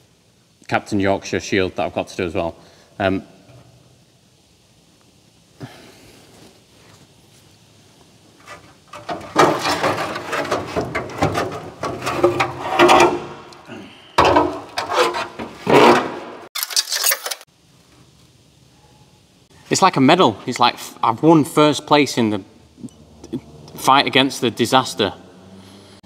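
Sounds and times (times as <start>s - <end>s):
metal panel scraping and rattling: 8.4s - 13.5s, 14.2s - 17.4s.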